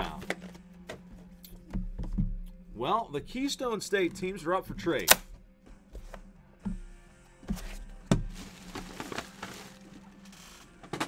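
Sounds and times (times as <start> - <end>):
rustling of card packs: 7.6 - 11.0.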